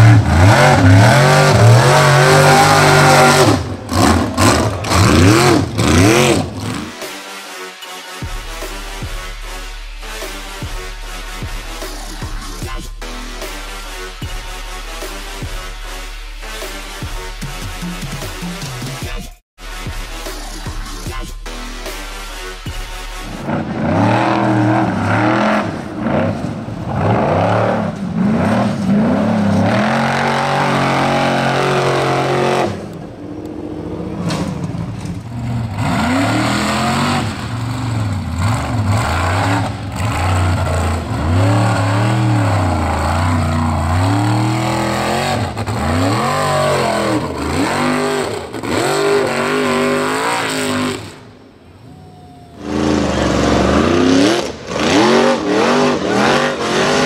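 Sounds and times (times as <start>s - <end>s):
buggy engines revving hard: 0.0s - 7.1s, 23.2s - 57.0s.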